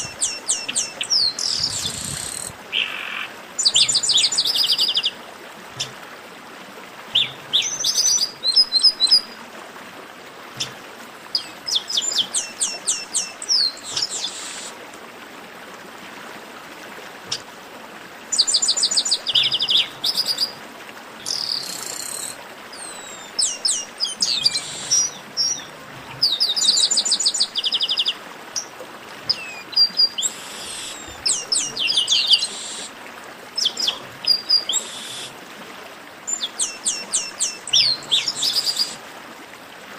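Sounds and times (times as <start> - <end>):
bird song: 0.0 - 5.1, 7.1 - 9.3, 11.4 - 14.7, 18.3 - 20.6, 21.2 - 28.7, 29.3 - 32.9, 33.6 - 35.3, 36.3 - 39.0
faint steady hiss: 0.0 - 39.9.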